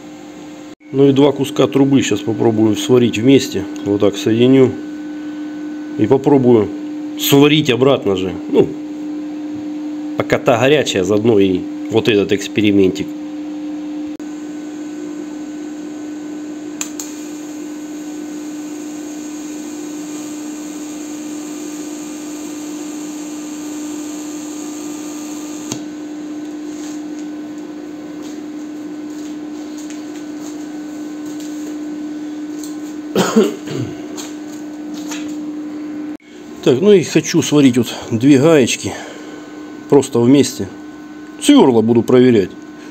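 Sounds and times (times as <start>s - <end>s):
welding inverter humming: 11.1s - 42.9s
welder click: 16.8s - 17.5s, 25.5s - 25.9s
welding arc hiss: 16.8s - 25.9s.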